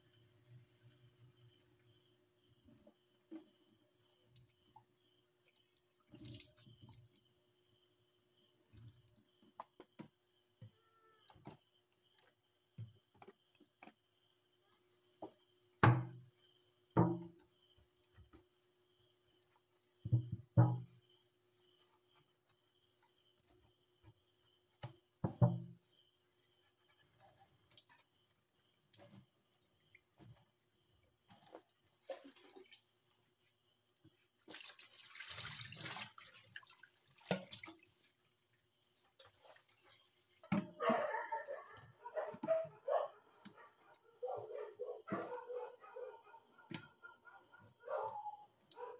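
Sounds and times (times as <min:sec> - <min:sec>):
knocks on metal sink: 0:15.8 - 0:16.2, 0:17.0 - 0:17.4, 0:20.1 - 0:20.9.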